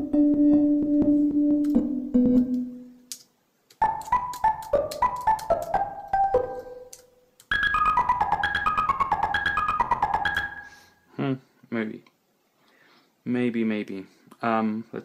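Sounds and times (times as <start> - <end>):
synthesizer descending notes: 3.8 - 10.7.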